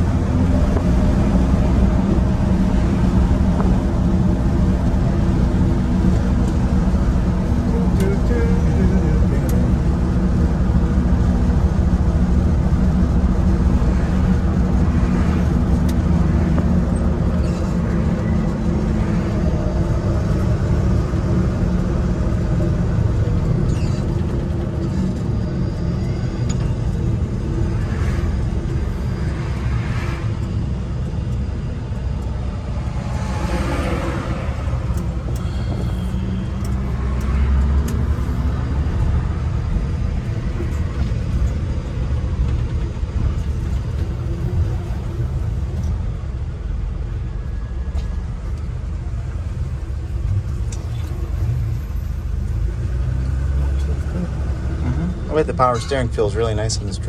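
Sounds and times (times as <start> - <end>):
road and tyre noise: 0.0 - 57.0.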